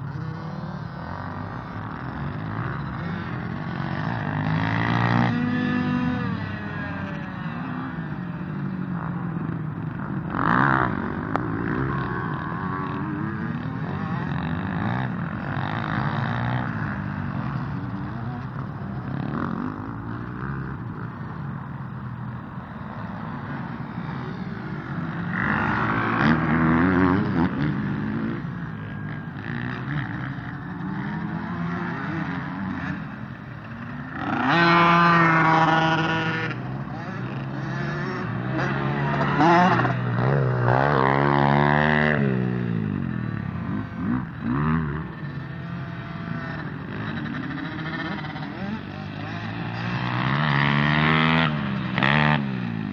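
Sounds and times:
dirt bike engine revving: 0.2 - 8.0, 23.3 - 52.9.

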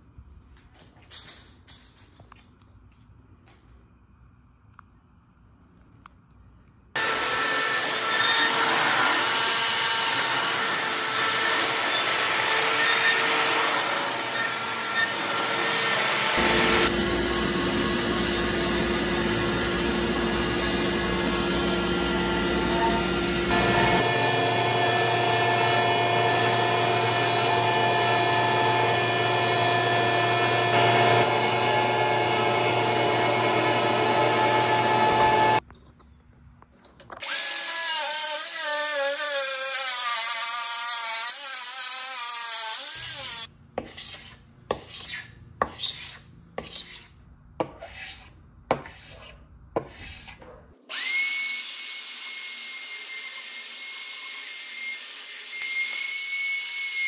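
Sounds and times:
circular saw cutting: 7.0 - 35.6, 37.2 - 47.1, 47.8 - 57.0
handheld router running: 7.0 - 35.6
router cutting wood: 7.0 - 35.6, 50.9 - 57.0.

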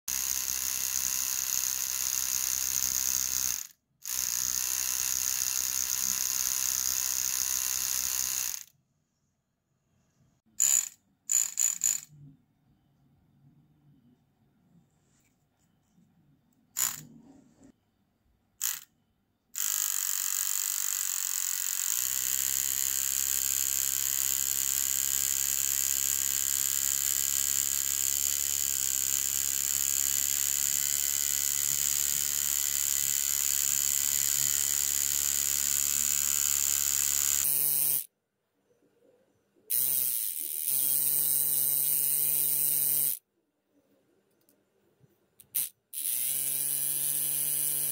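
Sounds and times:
tattoo machine motor buzzing: 0.1 - 8.7, 10.6 - 12.1, 16.8 - 17.1, 18.6 - 18.9, 19.6 - 38.1, 39.7 - 43.2, 45.4 - 47.9.

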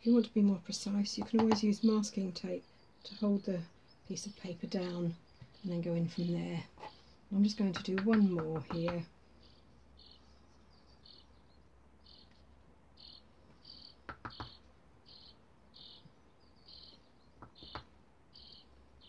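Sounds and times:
faint high chirps: 9.4 - 18.7.

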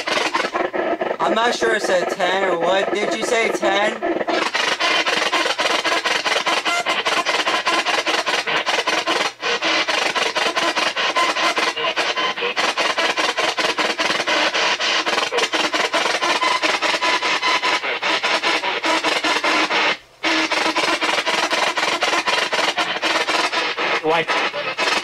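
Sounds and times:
broadcast sound fragments: 0.0 - 13.0
radio static sweeping: 0.0 - 25.0.

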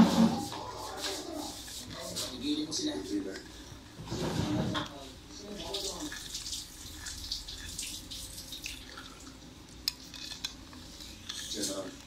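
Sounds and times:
sauce swishing in a bowl: 0.0 - 3.4, 5.1 - 9.0
spoon scraping a bowl: 9.9 - 12.0.

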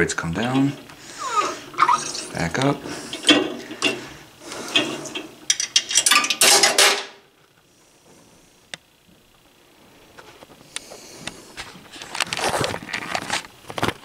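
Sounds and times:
scale mechanism metallic clattering: 0.4 - 0.9, 1.8 - 7.2.

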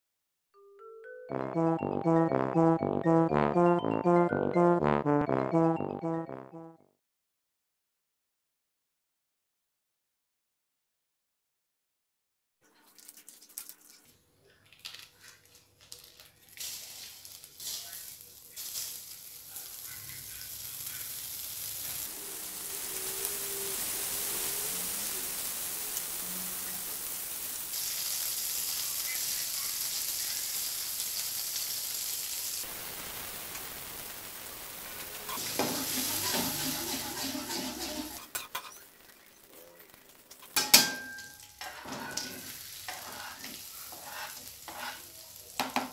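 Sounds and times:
margarine sizzling in a wok: 15.8 - 45.9
cutting board knocking on wok: 45.6 - 45.9.

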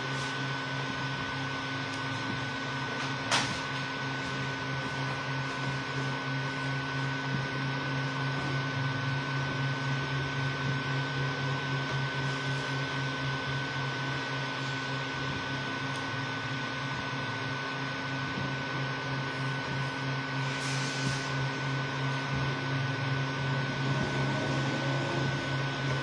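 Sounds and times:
high whine: 0.0 - 26.0
printer fans and motors whirring: 0.0 - 26.0
low hum: 19.2 - 26.0.

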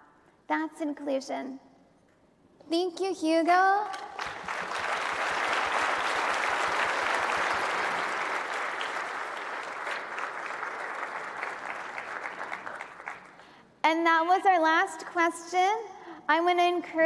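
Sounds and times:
large audience applauding: 4.2 - 13.5.

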